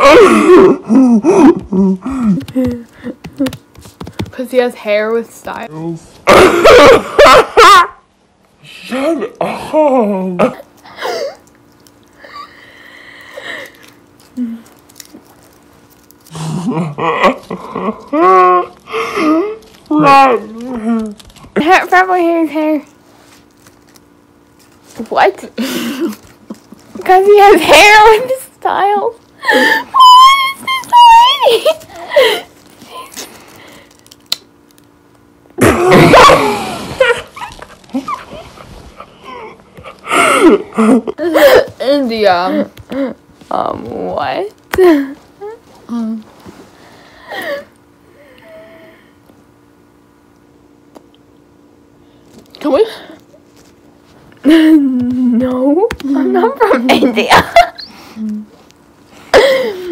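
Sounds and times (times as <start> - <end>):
girls laughing: 6.3 - 8.0, 29.4 - 33.1, 35.6 - 38.5, 56.4 - 58.0.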